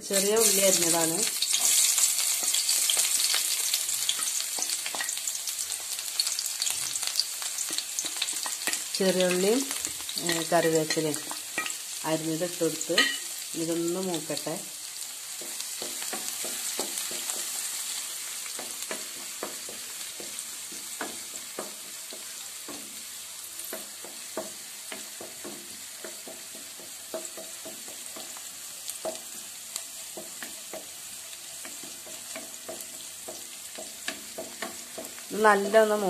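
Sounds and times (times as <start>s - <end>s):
shallots sizzling in hot oil: 0.0s - 36.0s.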